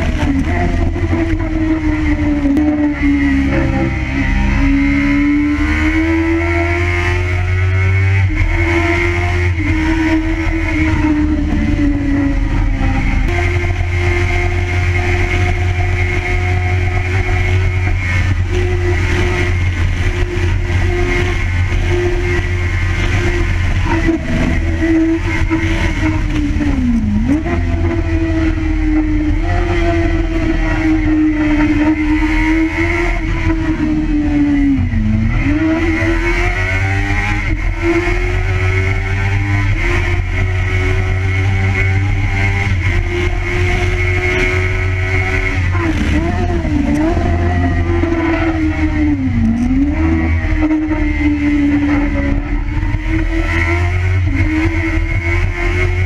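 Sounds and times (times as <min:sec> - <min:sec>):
motorcycle engine at high revs: 0:00.0 - 0:56.0.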